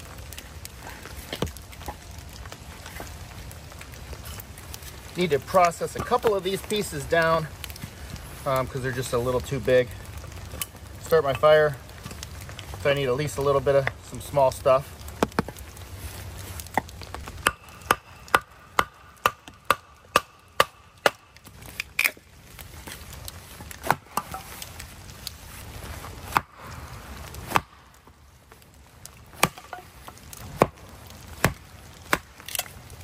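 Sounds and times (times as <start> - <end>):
wood chopping strokes: 1.0 - 3.1, 15.2 - 15.6, 16.4 - 28.2, 29.3 - 32.8.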